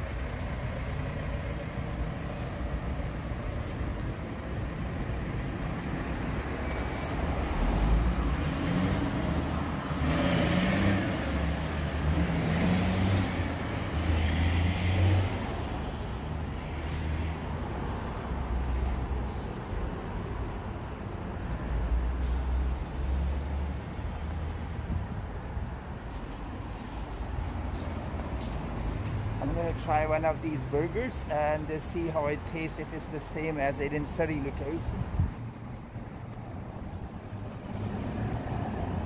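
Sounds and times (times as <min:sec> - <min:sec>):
road traffic: 0:00.0 - 0:39.0
vehicle passing: 0:05.7 - 0:24.7, 0:32.7 - 0:39.0.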